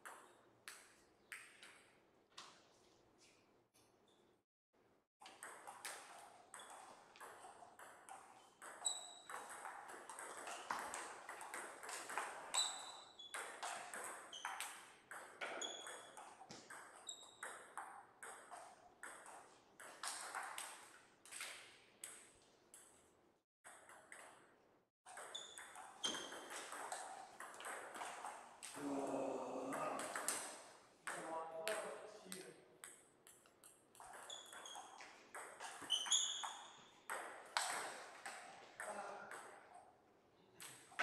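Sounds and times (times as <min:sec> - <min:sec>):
table tennis ball hits: 0:05.3 - 0:23.0, 0:25.1 - 0:28.4, 0:32.8 - 0:39.6.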